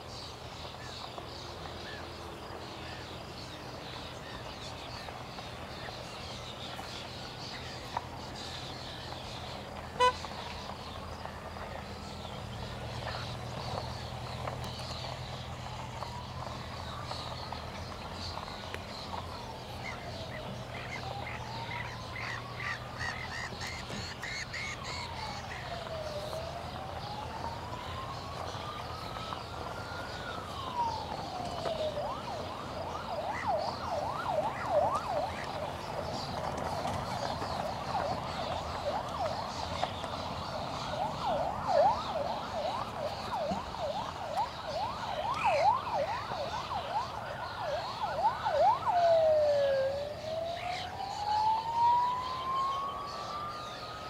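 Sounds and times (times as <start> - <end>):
siren wailing and yelping: 11.8 - 54.0.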